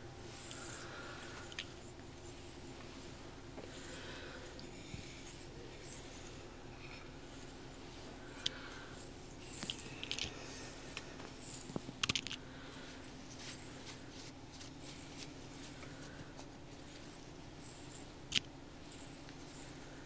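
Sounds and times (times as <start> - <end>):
faint steady hum: 0.0 - 20.0
hands scratching and brushing: 9.5 - 19.7.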